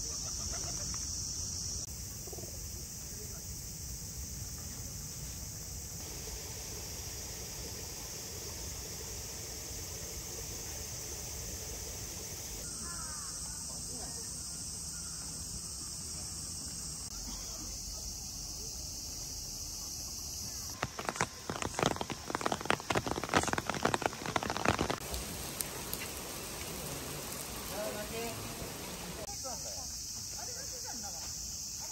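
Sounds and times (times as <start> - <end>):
heavy rain splashing: 6.0 - 12.6, 20.7 - 29.3.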